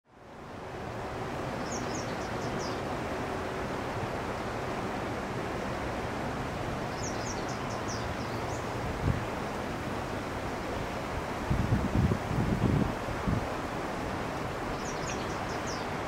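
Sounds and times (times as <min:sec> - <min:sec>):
outdoor background noise: 0:00.0 - 0:16.0
small bird chirping: 0:06.9 - 0:08.7, 0:14.8 - 0:15.9.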